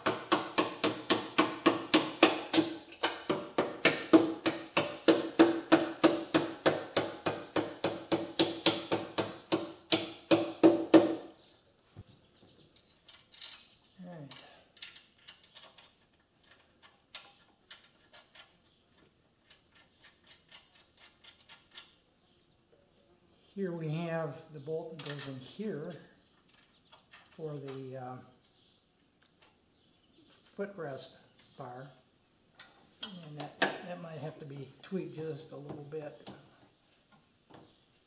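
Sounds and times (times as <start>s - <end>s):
metal parts clicking: 12.7s - 22.0s.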